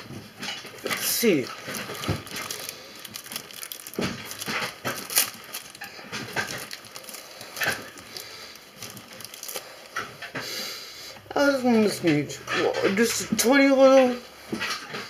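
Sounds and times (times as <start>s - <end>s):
plastic bag crinkling: 0.7s - 10.4s.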